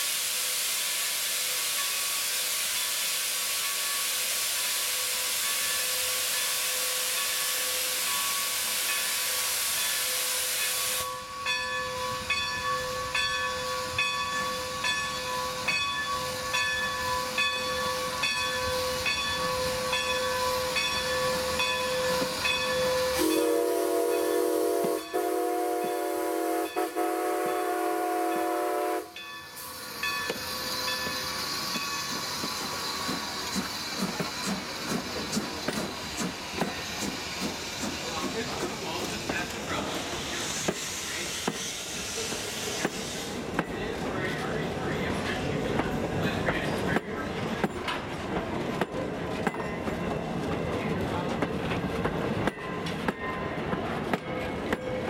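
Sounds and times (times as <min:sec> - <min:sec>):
steam hissing: 0:00.0 - 0:11.2, 0:15.5 - 0:44.4
steam locomotive chuffing beat: 0:14.8 - 0:44.1
steam whistle blast: 0:23.1 - 0:29.2.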